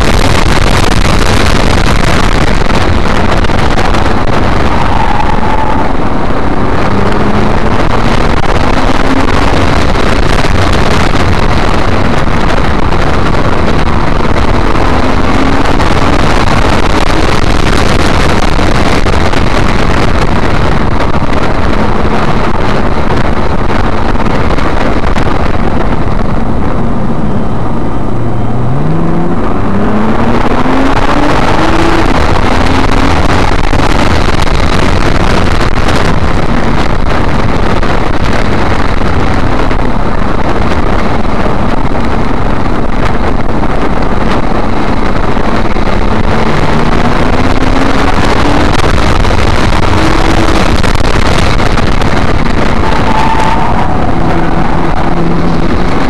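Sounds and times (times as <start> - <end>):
car engine accelerating: 0.0 - 56.0
road and wind noise: 0.0 - 56.0.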